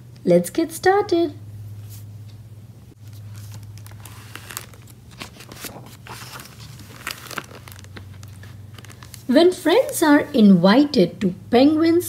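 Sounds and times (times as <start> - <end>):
steady low hum: 0.0 - 12.0
book pages crinkling and rustling: 3.0 - 10.2.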